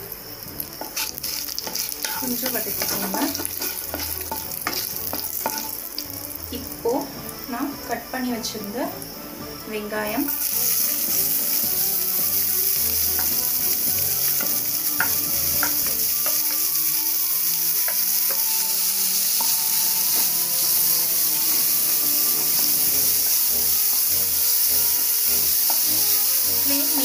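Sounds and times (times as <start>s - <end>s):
onions sizzling in hot oil: 0.0s - 27.0s
wooden spatula scraping and stirring: 0.8s - 6.2s.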